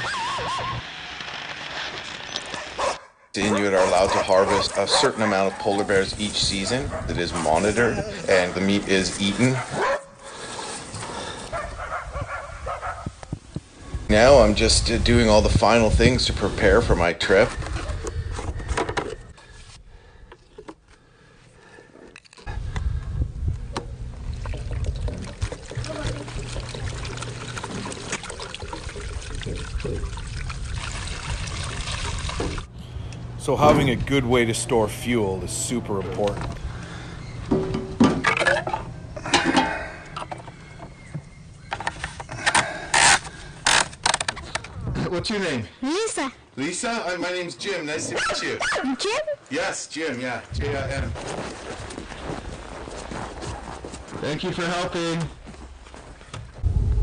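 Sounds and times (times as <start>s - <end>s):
handling of cans: 17.2s - 19.6s, 36.2s - 43.4s
fuel pouring through funnel: 21.6s - 32.8s.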